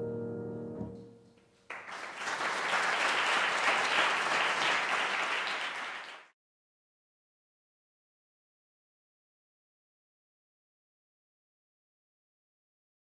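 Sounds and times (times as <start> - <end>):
audience applauding: 1.7 - 6.4.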